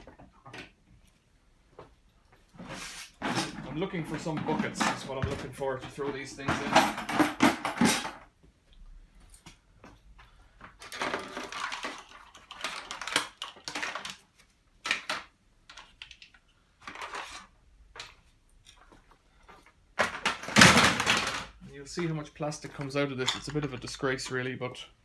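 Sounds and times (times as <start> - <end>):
hard plastic parts clattering: 3.2 - 8.3, 10.8 - 18.2, 20.0 - 24.5.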